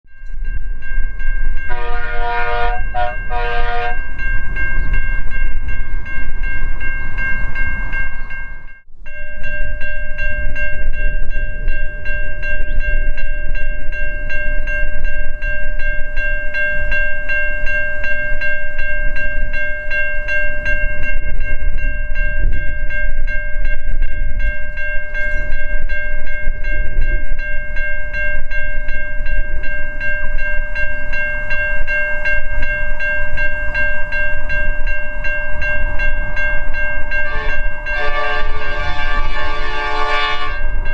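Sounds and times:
crossing bell ringing: 0.1s - 40.9s
locomotive horn blasts: 1.7s - 4.1s, 37.0s - 40.9s.

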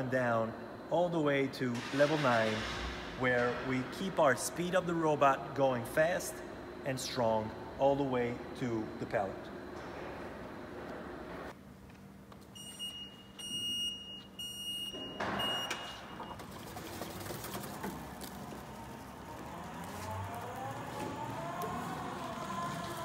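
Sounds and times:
high electronic warning beeps: 12.6s - 16.4s
drive motor running with whine: 17.9s - 23.0s.

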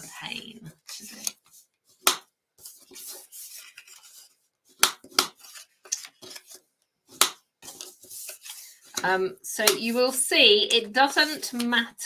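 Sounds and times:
paper rustling and scraping: 0.8s - 9.1s.

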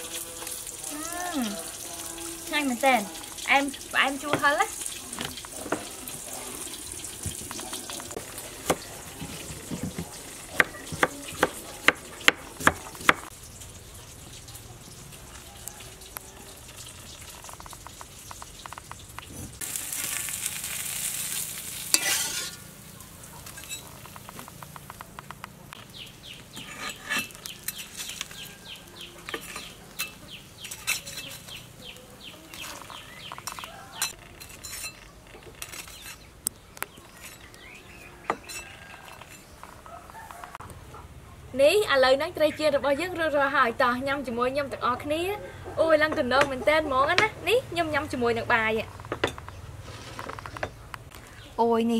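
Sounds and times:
fish sizzling in hot oil: 0.0s - 34.9s.

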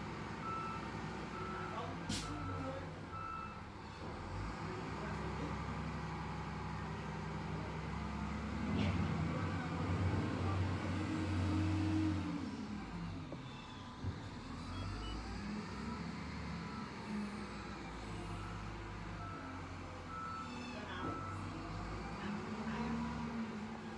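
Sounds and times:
wheel loader diesel engine revving: 0.0s - 23.9s.

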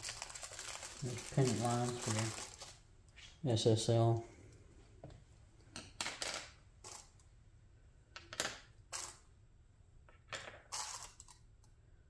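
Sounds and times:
packaging rustling: 0.0s - 2.8s
small parts clicking: 10.7s - 11.8s.

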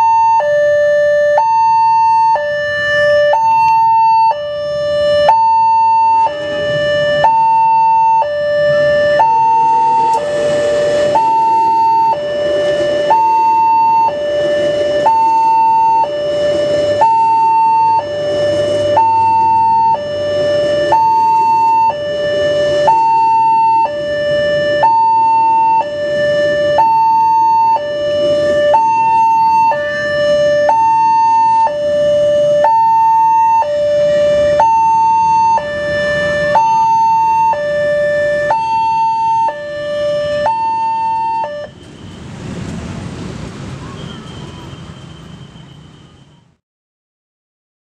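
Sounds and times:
level crossing two-tone alarm: 0.0s - 41.8s
train carriages rumbling past: 8.5s - 17.3s, 41.7s - 46.2s.

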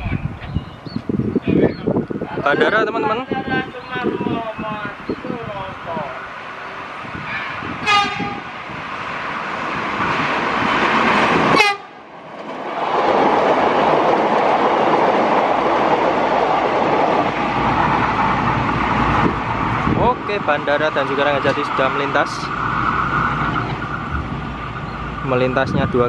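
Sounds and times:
train rushing past: 1.0s - 26.0s
train horn: 6.6s - 8.6s, 11.5s - 12.0s.

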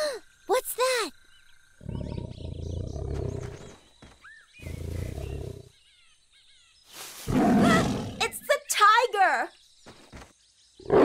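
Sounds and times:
tiger growling: 1.8s - 3.9s, 4.6s - 5.8s, 7.2s - 8.3s.

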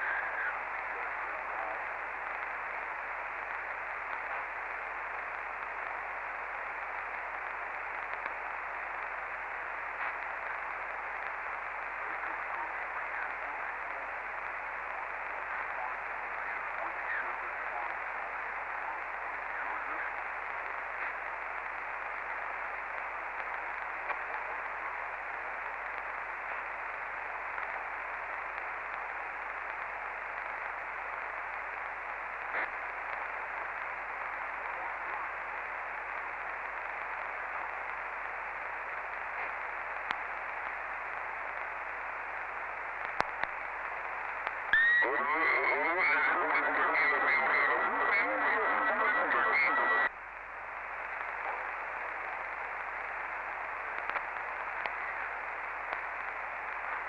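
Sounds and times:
distorted radio voice: 0.0s - 5.6s, 10.0s - 22.5s, 32.4s - 33.2s, 43.0s - 50.1s
radio receiver static hiss: 0.0s - 57.0s
faint clicks: 8.0s - 8.4s, 22.3s - 24.5s, 27.5s - 27.8s, 39.3s - 40.8s, 43.0s - 44.8s, 53.8s - 55.2s, 55.8s - 57.0s.

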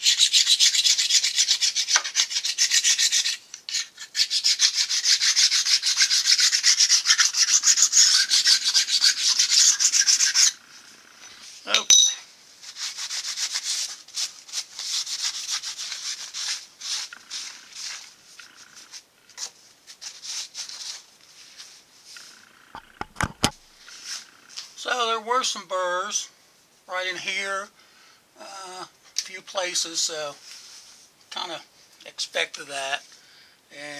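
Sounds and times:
honing stone rubbing on metal: 0.0s - 10.6s
metal clink: 11.8s - 12.3s.

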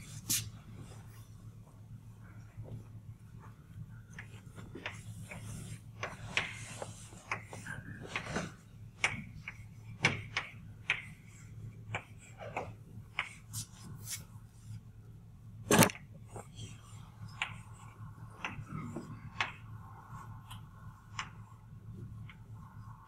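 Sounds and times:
chalk tapping and scraping on blackboard: 4.1s - 14.3s, 16.8s - 21.5s.

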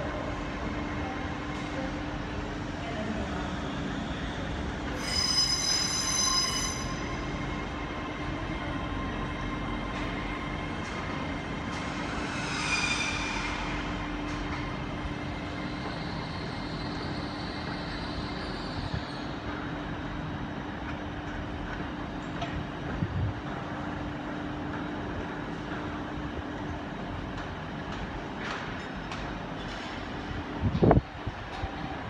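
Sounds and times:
train wheels squealing on rails: 1.4s - 20.0s.

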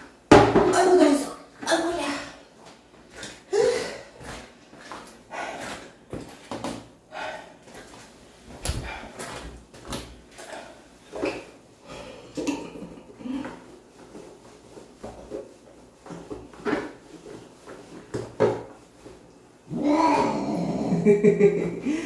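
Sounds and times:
plastic basin clunking on tiles: 0.3s - 0.8s.

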